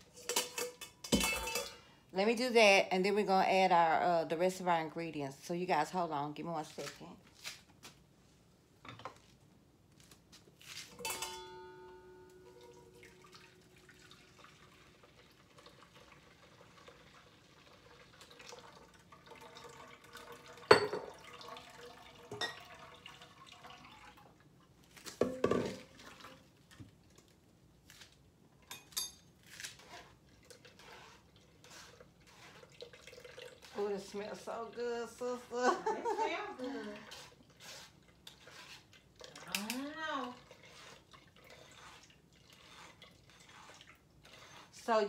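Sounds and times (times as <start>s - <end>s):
metal bowl clanging: 0.0s - 1.9s, 10.9s - 13.7s, 20.7s - 21.2s, 28.6s - 29.3s
metal kitchenware clattering: 0.0s - 1.9s, 10.9s - 13.2s, 28.6s - 29.3s
juice trickling and dripping: 12.5s - 25.1s, 30.2s - 35.2s, 36.6s - 44.5s.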